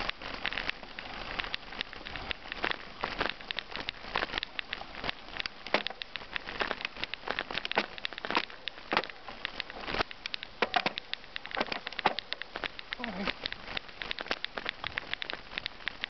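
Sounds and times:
bicycle tyres on gravel: 0.0 - 16.0.

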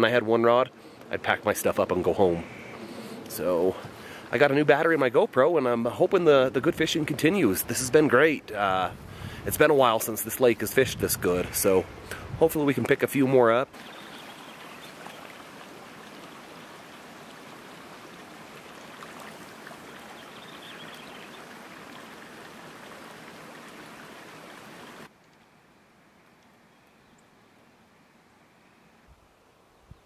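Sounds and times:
stream trickling: 0.0 - 29.5
faint outdoor hush: 0.4 - 4.5, 7.6 - 12.8.

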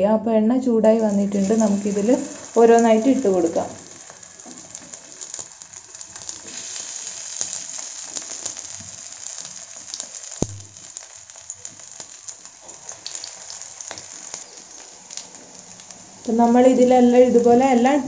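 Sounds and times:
dough sizzling in hot oil: 1.0 - 18.0
sharp tap: 10.4 - 10.7.

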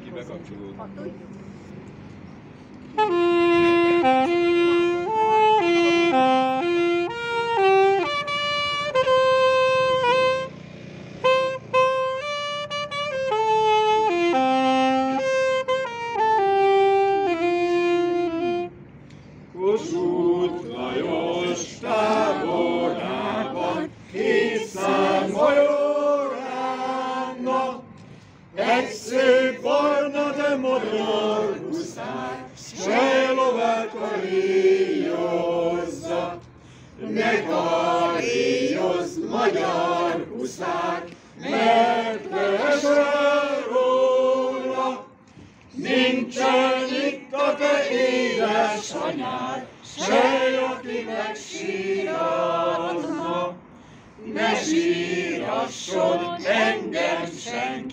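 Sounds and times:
group of voices singing: 19.5 - 57.9.

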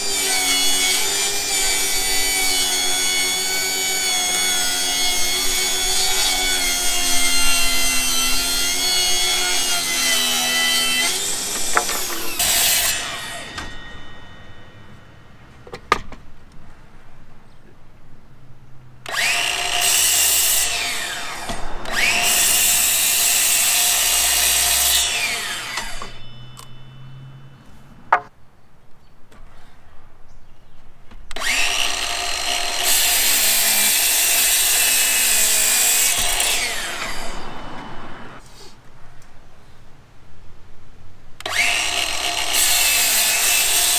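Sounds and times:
miter saw cutting wood: 0.0 - 15.2, 19.0 - 27.6, 31.3 - 38.5, 41.4 - 43.9
saw blade winding down: 0.0 - 15.3, 19.0 - 27.6, 31.4 - 38.4, 41.4 - 43.9.

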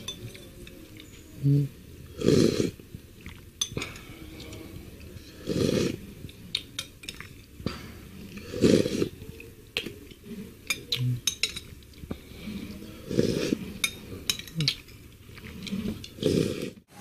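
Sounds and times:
spoon clinking against a bowl: 0.0 - 1.3, 3.6 - 4.7, 6.5 - 7.6, 10.6 - 12.0, 13.8 - 15.0.

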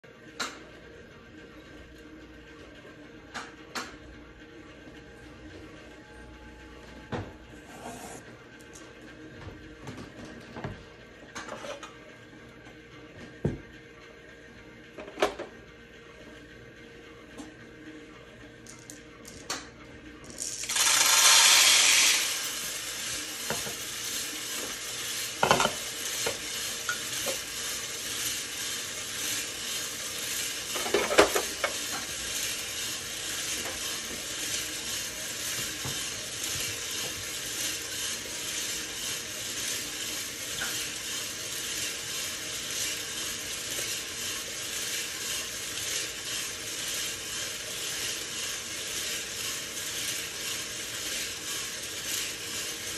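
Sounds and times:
faint motor hum: 0.1 - 52.9
coffee beans rattling in drum: 20.2 - 52.9.

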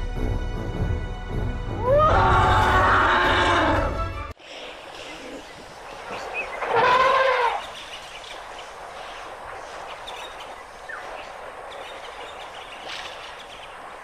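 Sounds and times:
steady outdoor noise: 0.0 - 14.0.

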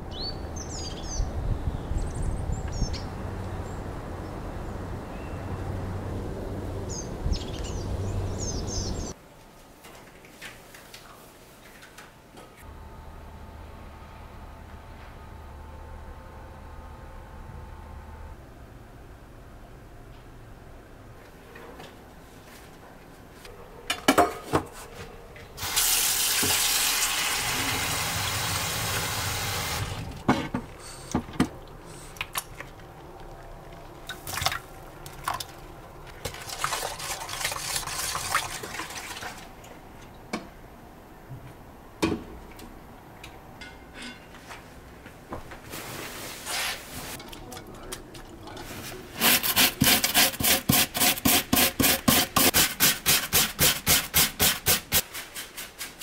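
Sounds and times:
tap water running into sink: 25.6 - 29.9.

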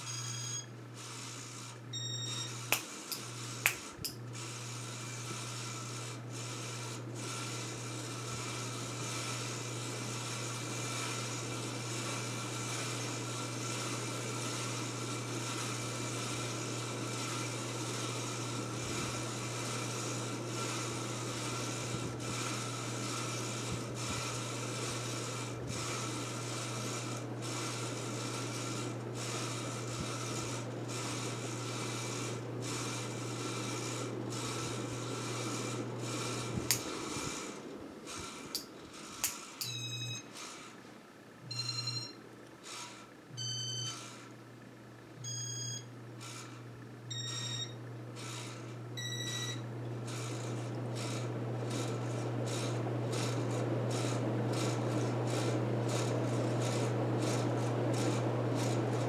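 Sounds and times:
ceiling fan running: 0.0 - 59.0.

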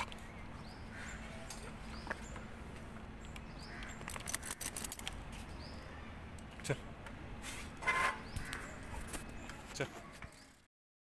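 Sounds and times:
small birds chirping: 0.0 - 6.9, 8.2 - 10.7
sharp clicks and scuffles: 3.2 - 5.6.

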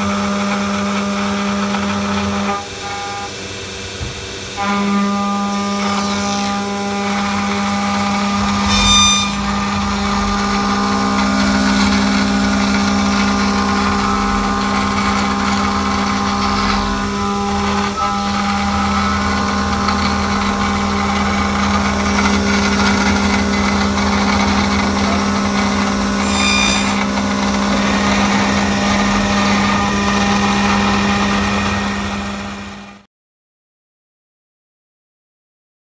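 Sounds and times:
router spindle milling metal: 0.0 - 33.0
sharp ringing hits: 8.4 - 12.1.

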